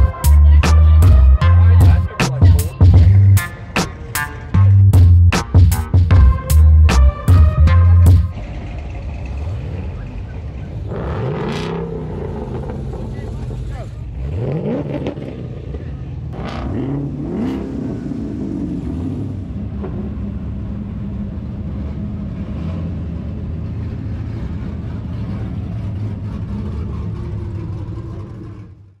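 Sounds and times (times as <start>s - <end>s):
car engine revving: 0.0s - 29.0s
low engine rumble passing: 6.1s - 29.0s.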